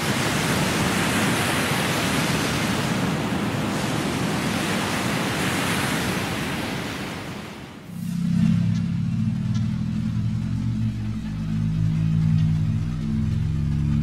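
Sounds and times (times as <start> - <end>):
ocean surf breaking on rocks: 0.0 - 9.3.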